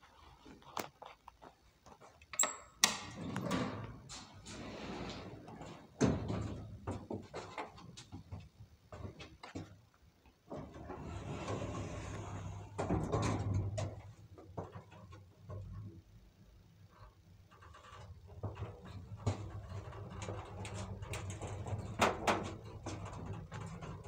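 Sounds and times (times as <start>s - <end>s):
elevator doors sliding: 3.1s - 6.8s, 10.6s - 14.0s.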